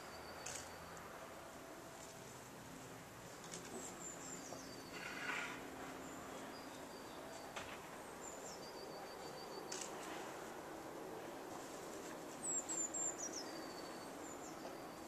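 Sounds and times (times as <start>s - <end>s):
small birds singing: 0.0s - 1.1s, 3.3s - 10.3s, 12.0s - 15.0s.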